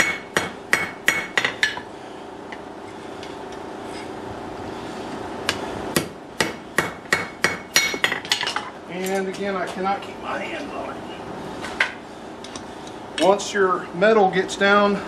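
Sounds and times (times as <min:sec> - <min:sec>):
hammer striking steel on anvil: 0:00.0 - 0:01.8, 0:05.5 - 0:08.5
steady low hum: 0:00.0 - 0:15.0.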